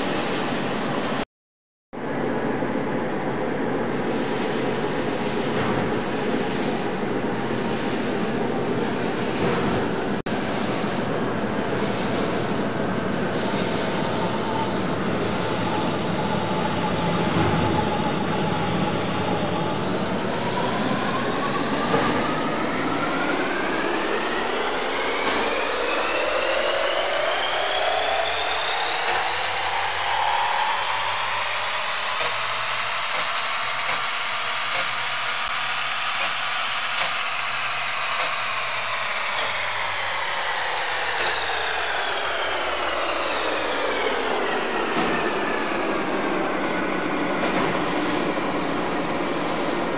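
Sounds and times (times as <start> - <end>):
metal lathe whining: 13.6 - 49.9.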